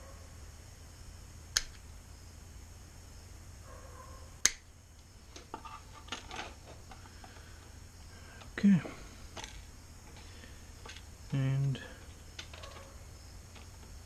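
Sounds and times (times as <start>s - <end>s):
mesh rustling and clinking: 5.3s - 7.4s, 8.4s - 14.0s.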